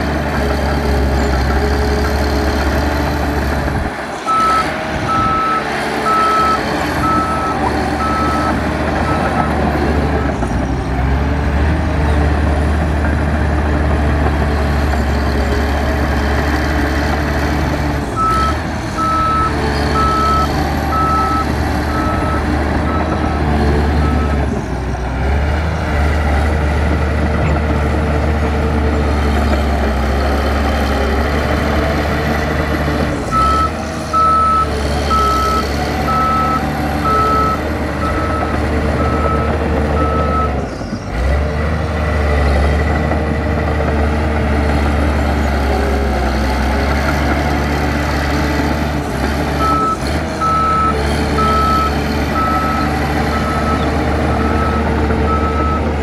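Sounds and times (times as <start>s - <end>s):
diesel engine running: 0.0s - 56.0s
reversing alarm beeps: 4.3s - 9.4s, 18.2s - 23.2s, 33.4s - 40.5s, 49.6s - 55.8s.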